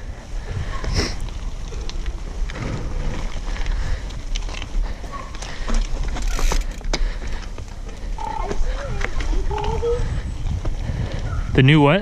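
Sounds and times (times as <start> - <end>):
bike tyres clicking and rattling: 0.0 - 12.0
wind on microphone: 8.2 - 12.0.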